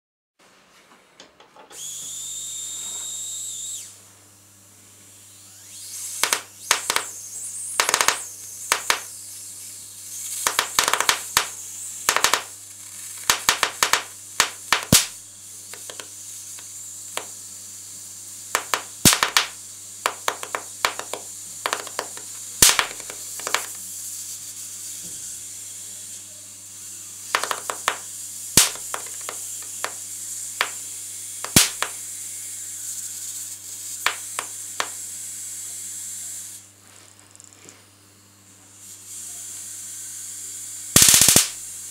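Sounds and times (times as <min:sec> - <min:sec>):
electric sparks snapping and crackling: 0:06.2 - 0:07.1, 0:07.8 - 0:09.1, 0:10.2 - 0:17.4, 0:18.5 - 0:23.8, 0:27.3 - 0:30.0, 0:30.6 - 0:30.8, 0:31.4 - 0:32.0, 0:34.0 - 0:35.0, 0:40.9 - 0:41.6.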